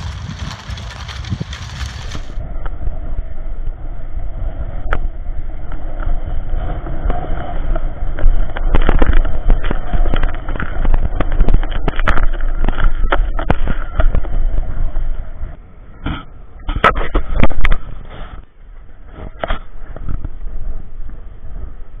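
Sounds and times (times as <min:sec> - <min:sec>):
skate wheels rolling on asphalt: 0:00.0 - 0:02.5, 0:05.4 - 0:15.6
wind on microphone: 0:00.0 - 0:22.0.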